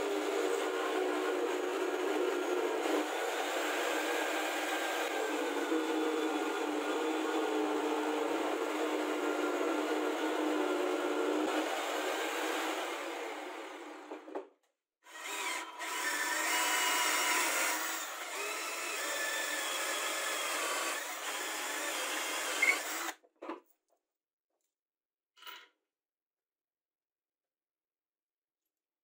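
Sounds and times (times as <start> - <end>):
cordless drill boring through wood: 0.0 - 14.2, 15.0 - 23.2.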